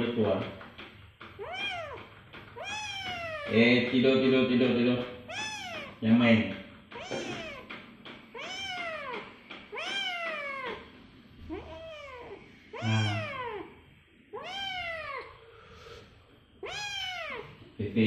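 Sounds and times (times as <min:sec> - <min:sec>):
kitten meowing: 0:01.4 - 0:03.7, 0:05.3 - 0:06.0, 0:06.9 - 0:07.7, 0:08.3 - 0:10.8, 0:11.5 - 0:13.7, 0:14.3 - 0:15.3, 0:16.6 - 0:17.6.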